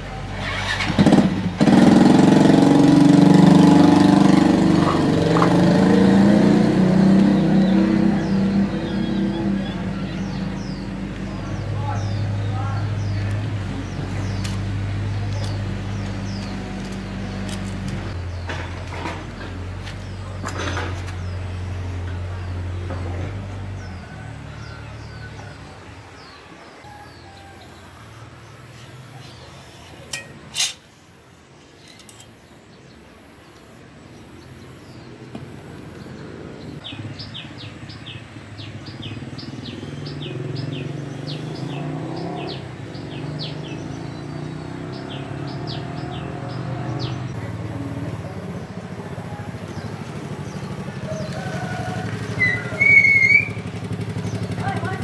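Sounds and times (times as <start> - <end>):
low rumble of traffic: 0.0 - 55.0
small birds chirping: 0.0 - 55.0.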